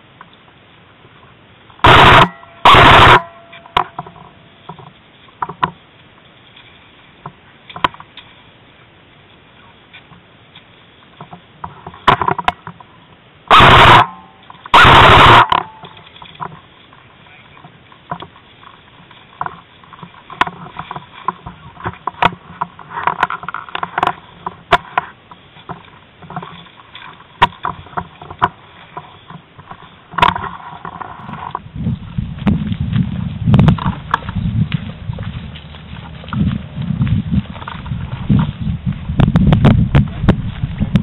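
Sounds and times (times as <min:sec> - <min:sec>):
loud distorted bursts: 0:01.8 - 0:04.2, 0:13.5 - 0:15.9
footsteps in dry grass: 0:02.3 - 0:12.0, 0:14.2 - 0:41.0.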